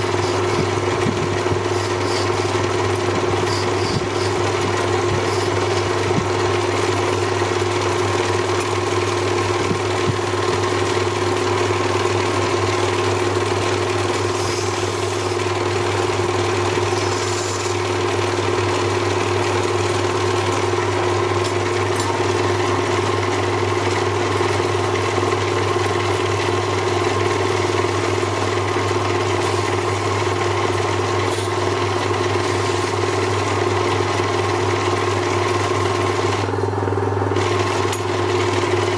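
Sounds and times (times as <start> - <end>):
cutting tool scraping: 0.0 - 6.2, 14.3 - 15.4, 16.8 - 17.8
lathe humming: 0.0 - 38.9.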